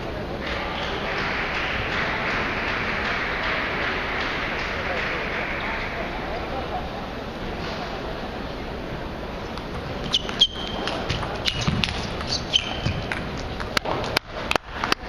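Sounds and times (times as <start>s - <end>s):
sneakers squeaking on floor: 9.4s - 14.1s
table tennis ball clicking: 9.5s - 15.0s.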